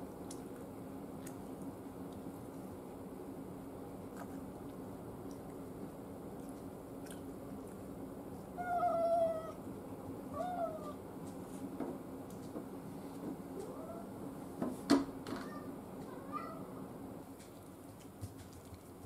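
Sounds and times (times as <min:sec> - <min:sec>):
cat meowing: 0:08.6 - 0:09.6, 0:10.3 - 0:11.0, 0:15.4 - 0:16.7.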